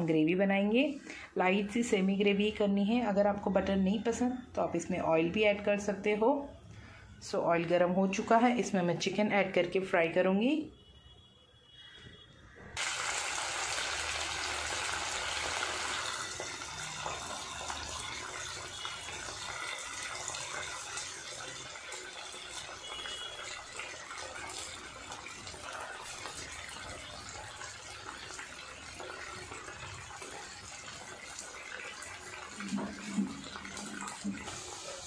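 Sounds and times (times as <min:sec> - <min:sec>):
chicken deep-frying in oil: 0:12.8 - 0:35.0.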